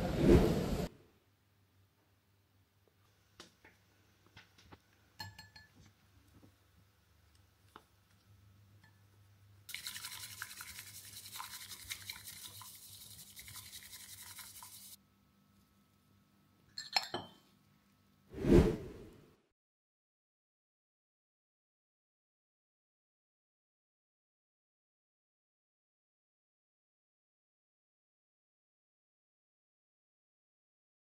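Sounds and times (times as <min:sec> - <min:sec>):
utensils tapping and clinking: 0:05.2 - 0:05.8, 0:16.7 - 0:17.4
bamboo whisk swishing: 0:09.8 - 0:15.0.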